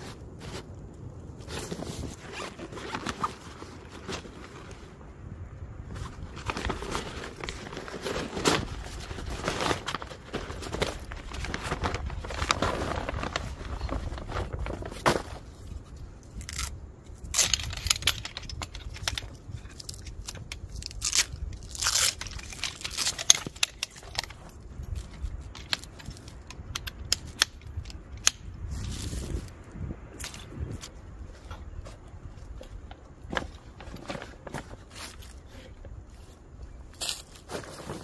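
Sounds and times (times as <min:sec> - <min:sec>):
nylon bag rustling: 0:01.4 - 0:05.0, 0:05.9 - 0:15.5, 0:33.2 - 0:38.0.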